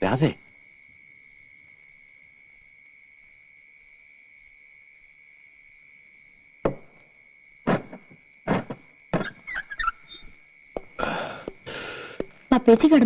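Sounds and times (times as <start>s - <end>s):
crickets trilling: 0.0s - 13.0s
knock on wooden door: 6.6s - 7.0s.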